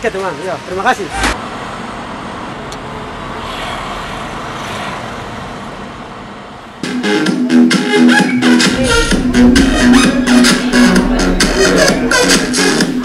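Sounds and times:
music: 0:06.8 - 0:13.0
vehicle passing: 0:08.7 - 0:13.0.

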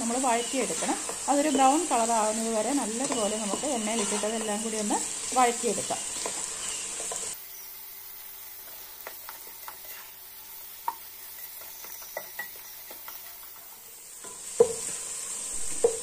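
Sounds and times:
onions sizzling in a pot: 0:00.0 - 0:16.0
spatula scraping and tapping pan: 0:00.6 - 0:05.0, 0:06.1 - 0:07.4, 0:08.6 - 0:10.2, 0:10.8 - 0:15.1.

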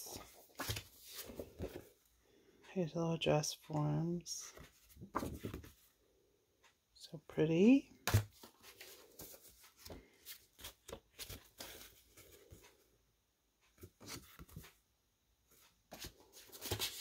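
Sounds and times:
paper cards rustling and tapping: 0:00.1 - 0:01.9, 0:04.5 - 0:05.8, 0:08.0 - 0:12.7, 0:13.8 - 0:14.8, 0:15.5 - 0:17.0.

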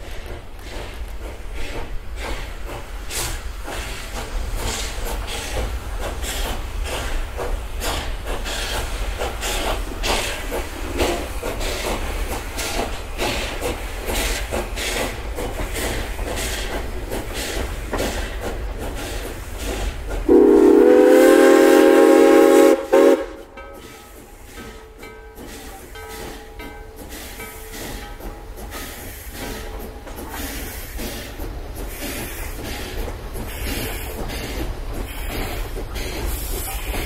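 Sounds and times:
locomotive chuffs and clanks: 0:00.0 - 0:37.0
steam locomotive rumble: 0:00.0 - 0:37.0
steam whistle chord: 0:20.3 - 0:23.5.

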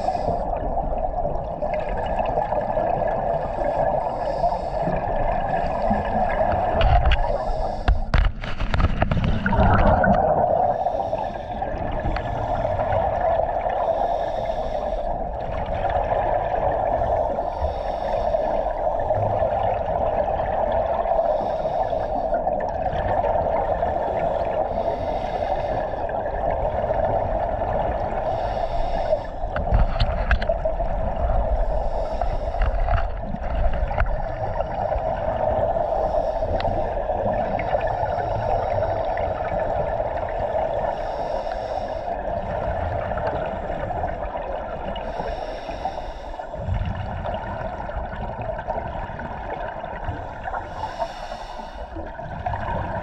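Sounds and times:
diver breathing through regulator: 0:00.0 - 0:00.8, 0:03.2 - 0:15.5, 0:16.9 - 0:19.3, 0:21.1 - 0:22.6, 0:23.7 - 0:30.7, 0:31.3 - 0:44.3, 0:44.9 - 0:47.7, 0:49.8 - 0:52.2
rush of exhaled bubbles: 0:08.8 - 0:13.9.

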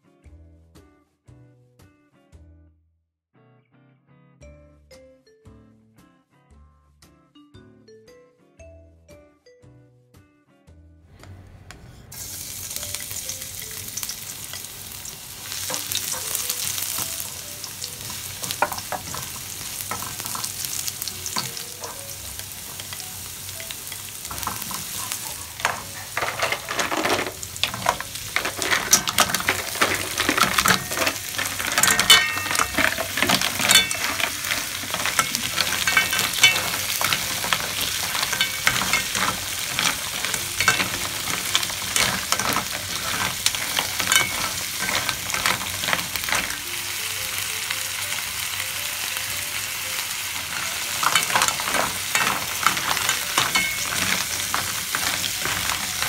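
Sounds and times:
food sizzling in a wok: 0:11.9 - 0:56.0
mussel shells clicking in pan: 0:13.0 - 0:47.0, 0:50.4 - 0:56.0.

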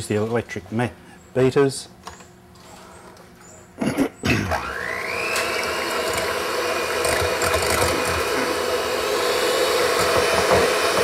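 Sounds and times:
electric hand mixer whine: 0:04.5 - 0:11.0.

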